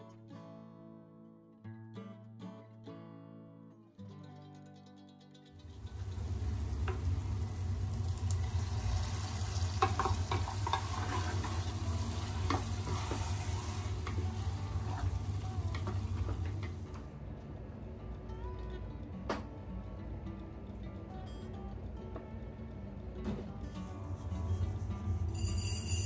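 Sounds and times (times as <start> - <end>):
food sizzling in a pot: 5.6 - 17.0, 24.3 - 26.0
spatula scraping and knocking pot: 8.8 - 16.8.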